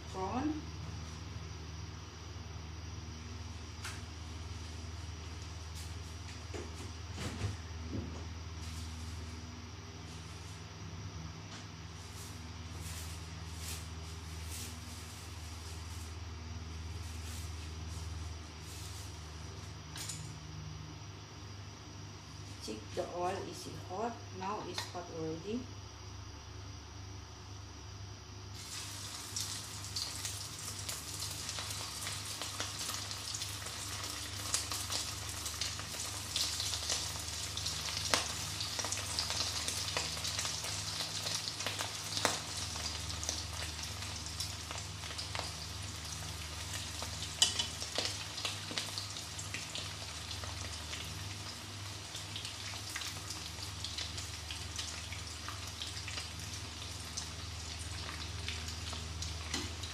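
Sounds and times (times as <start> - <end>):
prawns deep-frying in hot oil: 0.0 - 2.2, 28.5 - 59.9.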